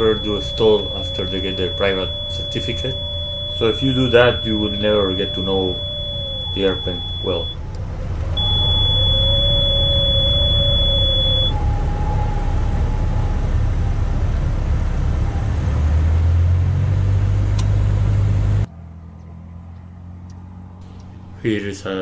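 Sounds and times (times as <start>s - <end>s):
high-pitched warning tone: 0.0s - 7.7s, 8.4s - 11.6s
faint wavering tones: 0.0s - 14.3s
airplane engine droning: 0.0s - 22.0s
outdoor ambience: 0.0s - 22.0s.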